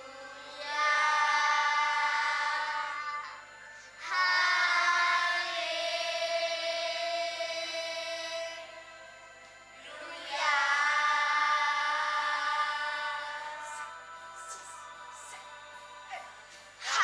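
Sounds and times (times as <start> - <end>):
children's choir singing: 0.0 - 9.0, 9.8 - 17.0.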